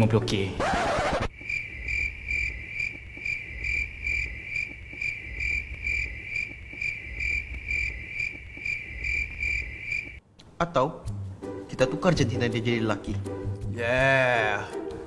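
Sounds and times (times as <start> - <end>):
cricket chirping: 1.3 - 10.2.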